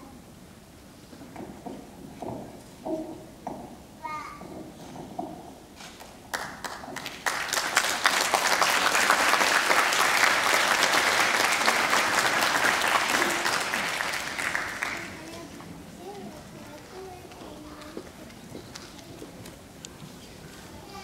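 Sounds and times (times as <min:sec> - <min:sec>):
audience applauding: 0:06.0 - 0:15.3.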